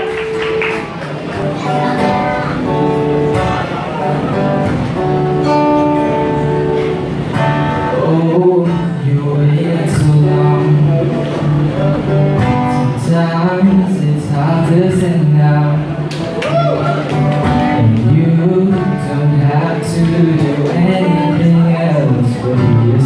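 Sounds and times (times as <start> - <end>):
acoustic guitar strummed and picked: 0.0 - 23.0.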